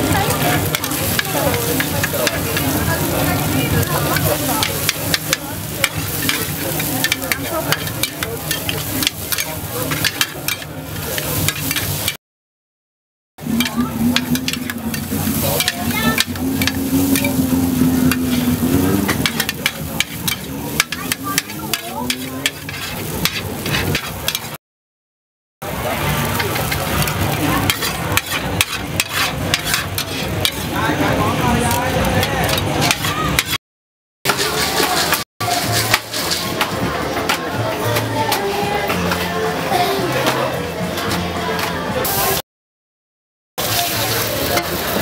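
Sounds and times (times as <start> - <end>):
frying sizzle: 0.0 - 12.2, 13.4 - 24.6, 25.6 - 33.6, 34.3 - 42.4, 43.6 - 45.0
metal spatulas scraping on griddle: 0.1 - 12.2, 13.4 - 24.6, 26.0 - 33.6, 34.3 - 37.4.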